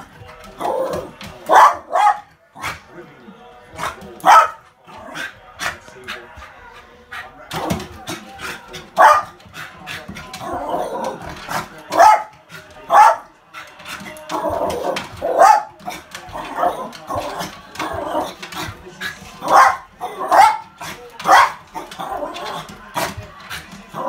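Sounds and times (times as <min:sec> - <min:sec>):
dog barking excitedly: 0:01.5 - 0:02.7, 0:04.2 - 0:04.6, 0:08.9 - 0:09.3, 0:11.9 - 0:12.3, 0:12.9 - 0:13.2, 0:14.8 - 0:15.7, 0:19.4 - 0:22.5.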